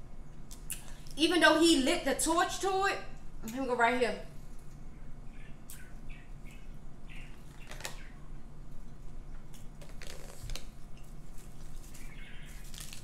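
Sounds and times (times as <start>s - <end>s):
low room hum: 0.0s - 13.0s
person chewing: 8.8s - 13.0s.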